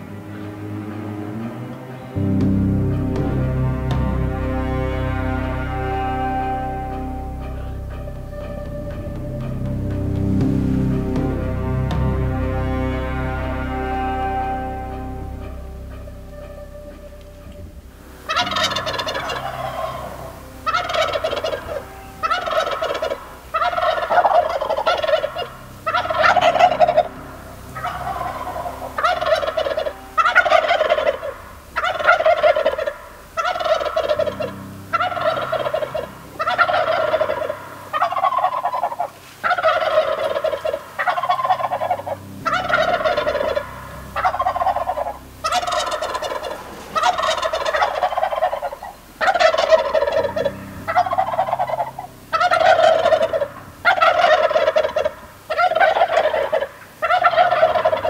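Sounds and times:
turkeys gobbling: 0:18.2 - 0:58.0.

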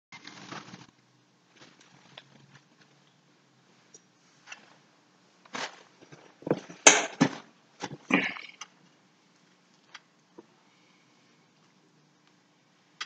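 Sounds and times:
chair thumps and scrapes: 0:06.1 - 0:08.1.

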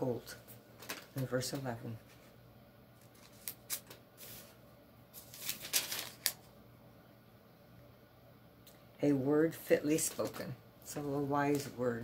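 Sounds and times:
book pages rustling: 0:03.0 - 0:04.6, 0:05.2 - 0:06.5.

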